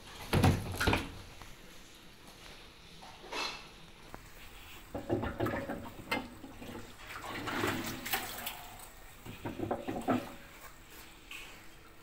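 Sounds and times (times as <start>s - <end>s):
hand knocking and rubbing washing machine drum: 4.9s - 6.7s, 9.2s - 10.4s.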